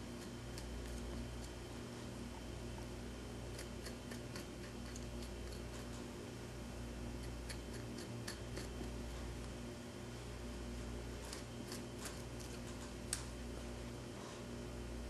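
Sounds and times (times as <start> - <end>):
steady low hum: 0.0 - 15.0
blade cutting skin: 3.5 - 6.0, 7.2 - 9.0.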